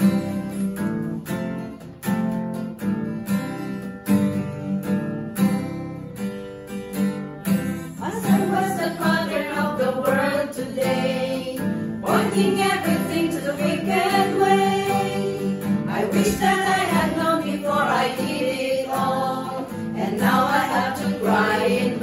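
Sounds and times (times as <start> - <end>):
acoustic guitar strumming: 0.0 - 22.0
women singing together: 8.0 - 22.0.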